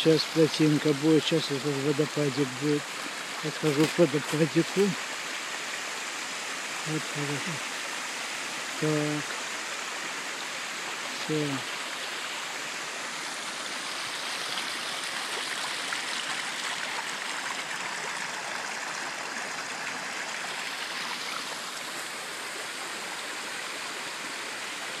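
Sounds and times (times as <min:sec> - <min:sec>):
small waterfall: 0:00.0 - 0:25.0
brook rushing over rocks: 0:03.5 - 0:05.0.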